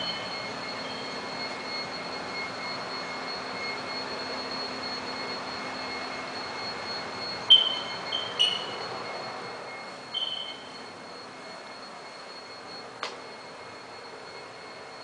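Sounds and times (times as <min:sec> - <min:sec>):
faint high whine: 0:00.0 - 0:15.0
sharp high-pitched squeaks: 0:07.5 - 0:08.9, 0:10.1 - 0:10.8.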